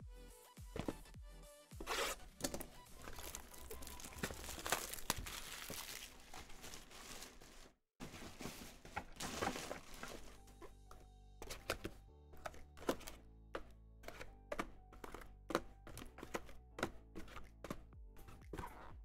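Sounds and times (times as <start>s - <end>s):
packaging crinkling and tearing: 1.8s - 7.7s.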